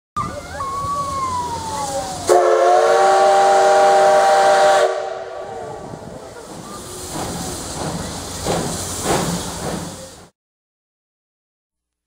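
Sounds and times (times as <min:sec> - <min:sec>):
steam hissing: 0:00.6 - 0:10.3
steam locomotive whistle: 0:01.8 - 0:05.9.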